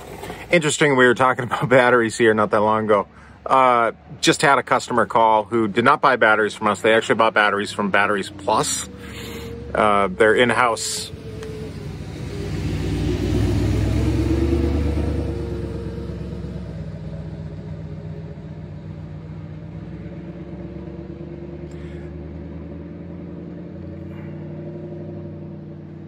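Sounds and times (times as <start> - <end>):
engine running: 0.0 - 26.0.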